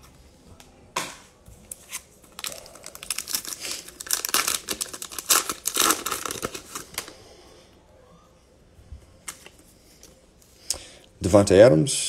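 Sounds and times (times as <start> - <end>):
wrapper crackling torn open: 2.4 - 7.1.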